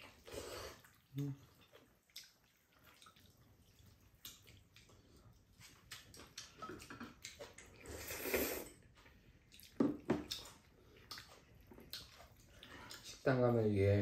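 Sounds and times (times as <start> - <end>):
slurping noodles: 0.0 - 1.6, 7.6 - 8.8
wet chewing smacks: 0.0 - 13.4.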